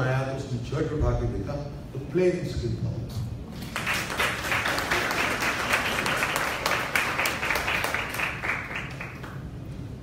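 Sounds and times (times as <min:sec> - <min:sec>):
audience applauding: 0:03.6 - 0:09.7.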